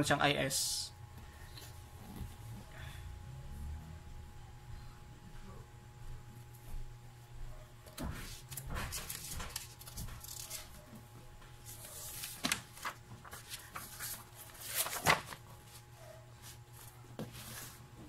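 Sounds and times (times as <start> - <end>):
steady low hum: 0.0 - 18.0
paper rustling: 8.0 - 10.9, 11.6 - 15.8, 16.4 - 17.8.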